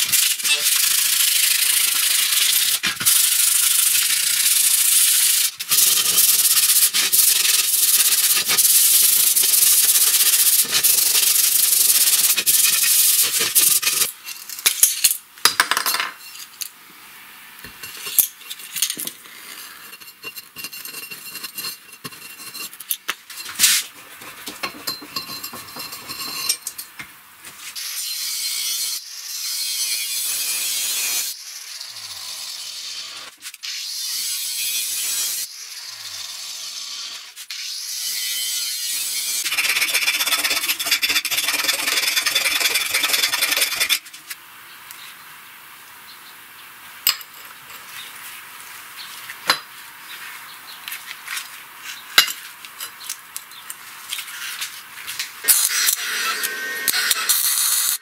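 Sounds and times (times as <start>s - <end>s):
file rasping on metal: 5.7s - 14.1s, 39.2s - 44.0s
tools clinking: 24.5s - 27.0s
cut-off wheel grinding steel: 39.3s - 44.0s, 55.4s - 58.0s.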